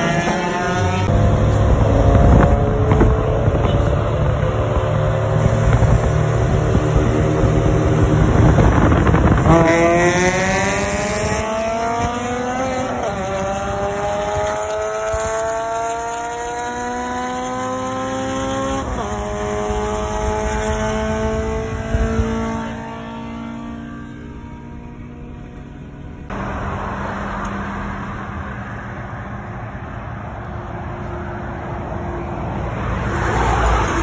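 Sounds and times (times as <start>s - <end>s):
car engine accelerating: 0.0s - 34.0s.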